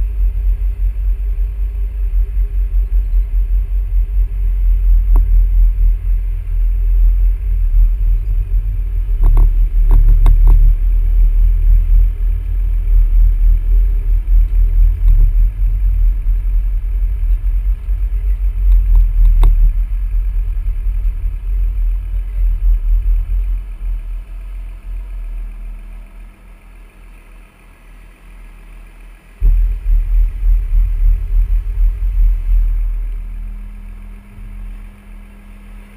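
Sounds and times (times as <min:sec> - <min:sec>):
wind buffeting microphone: 0:29.4 - 0:35.4.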